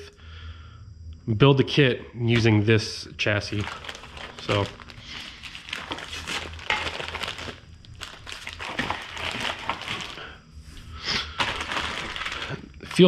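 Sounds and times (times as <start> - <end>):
plastic bags crinkling: 3.4 - 10.4, 11.1 - 13.0.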